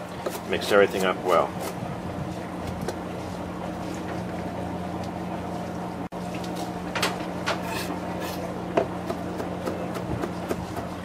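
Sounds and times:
knife chopping on cutting board: 7.6 - 10.9.

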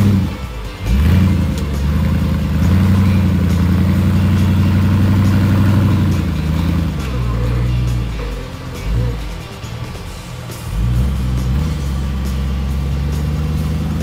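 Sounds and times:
engine revving under load: 0.0 - 14.0.

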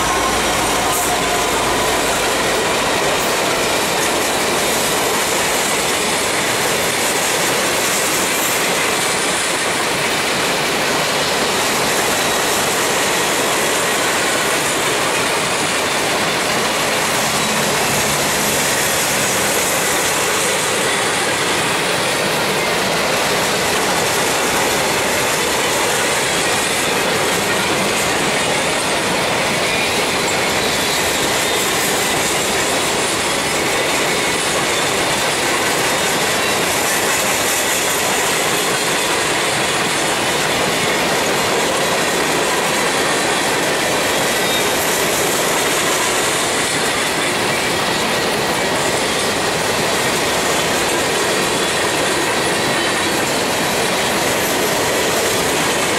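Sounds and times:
steel wheels clacking on rail: 0.0 - 55.9
faint high wheel squeal: 44.1 - 49.3.

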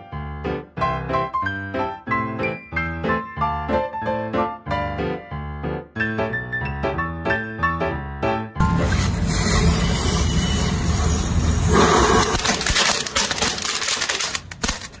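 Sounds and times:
firecracker hissing and crackling: 9.1 - 14.4.

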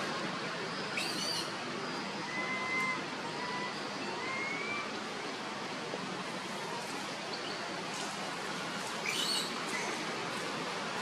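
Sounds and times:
outdoor background hiss: 0.0 - 11.0
faint thin whistled calls: 0.9 - 1.6, 2.3 - 4.9, 9.0 - 10.0.

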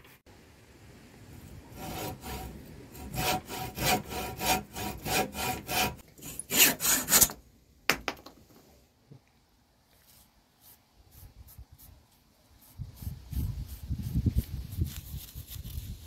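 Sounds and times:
hacksaw cutting wood: 1.8 - 7.4.

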